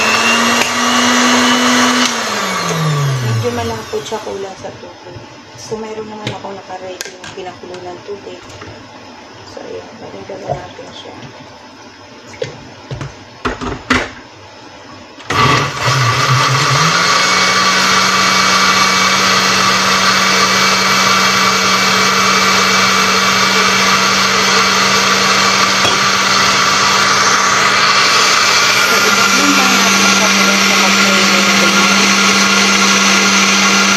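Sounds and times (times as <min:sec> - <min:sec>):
electric blender motor running: 0:00.0 - 0:04.9, 0:15.2 - 0:33.9.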